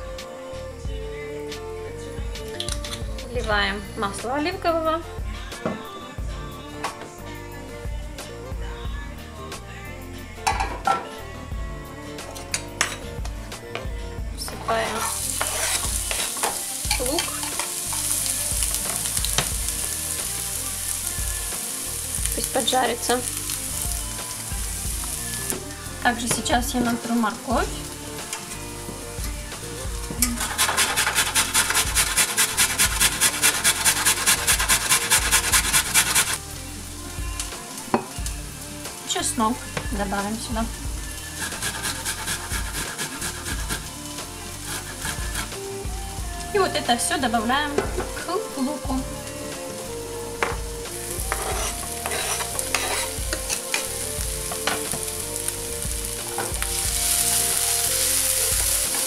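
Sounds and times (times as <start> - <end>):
vegetables sizzling in oil: 12.4 - 59.0
spatula scraping a pan: 14.6 - 18.2, 30.2 - 36.4, 41.3 - 43.9, 44.5 - 45.6, 51.1 - 55.0
carrot rasping on a metal grater: 30.4 - 36.4, 41.4 - 43.8, 44.7 - 45.5, 51.3 - 53.2.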